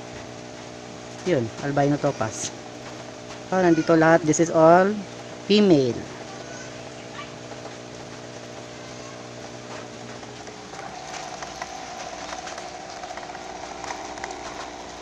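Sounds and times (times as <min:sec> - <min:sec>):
air pump humming: 0:00.0 - 0:15.0
faint ticks and splashes: 0:00.0 - 0:15.0
water bubbling: 0:09.4 - 0:15.0.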